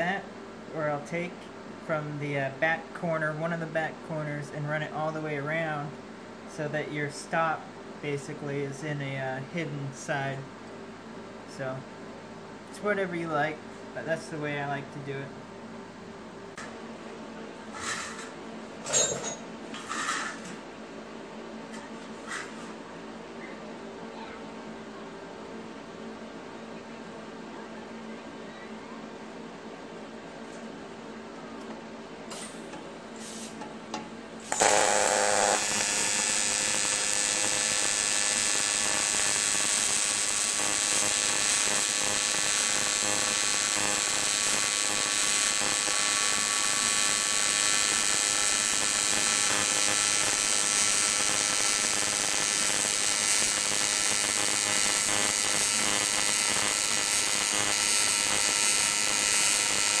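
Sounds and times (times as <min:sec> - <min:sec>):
welding arc buzzing: 0:34.4 - 1:00.0.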